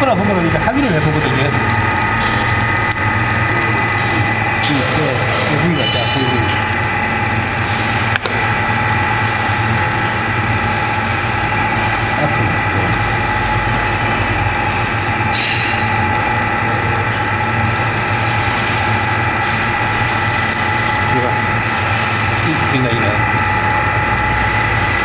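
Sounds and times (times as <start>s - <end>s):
machinery humming and whining: 0.0s - 25.0s.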